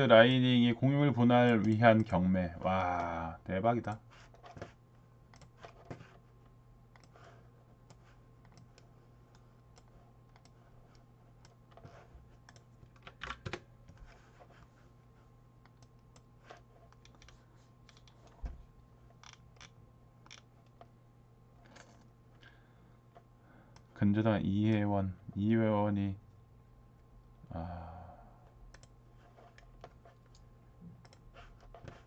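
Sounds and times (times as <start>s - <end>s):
keyboard and mouse clicks: 3.8s - 6.2s, 6.9s - 14.0s, 15.6s - 18.5s, 19.1s - 20.9s, 28.7s - 32.0s.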